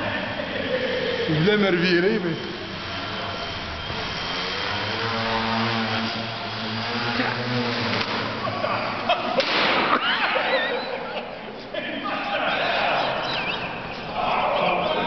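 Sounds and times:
model plane propeller buzzing: 0.3 - 9.2
plane slammed onto floor: 9.4 - 9.9.

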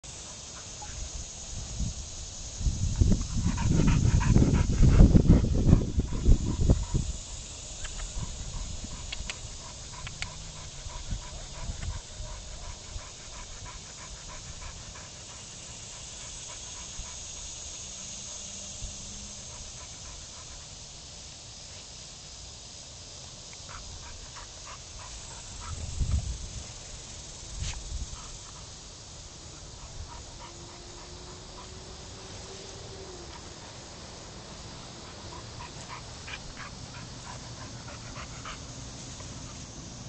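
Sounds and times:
dog panting: 2.8 - 20.8, 23.7 - 26.5, 27.8 - 32.3, 34.9 - 40.0.

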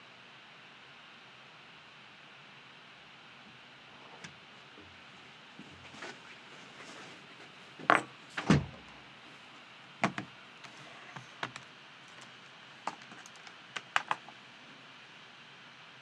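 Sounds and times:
door thudding shut: 7.9 - 8.8
clicks and taps on desk: 12.9 - 14.2.

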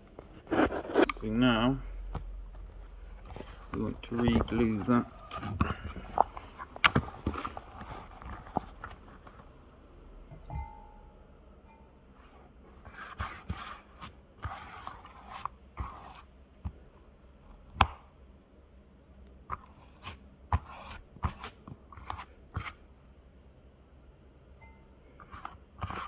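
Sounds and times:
scrapes and rustles on fabric: 0.2 - 1.4, 12.2 - 16.3.

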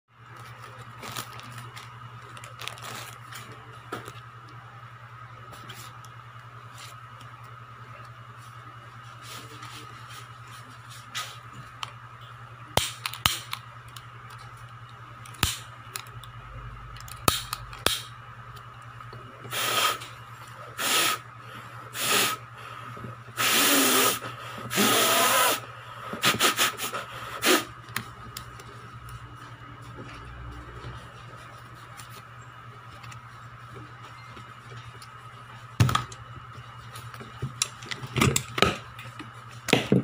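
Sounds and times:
steady electrical hum: 0.1 - 40.0
breaths blown through face mask: 20.8 - 21.2, 21.9 - 22.5, 23.4 - 27.8.

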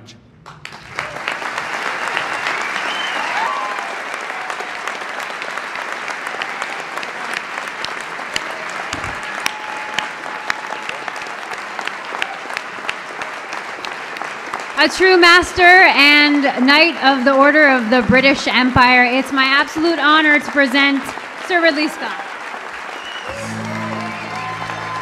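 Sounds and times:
audience applauding: 0.4 - 25.0.

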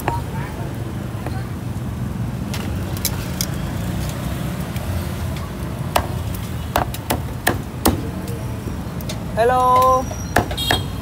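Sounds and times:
cleaver chopping meat on metal: 5.9 - 8.2.

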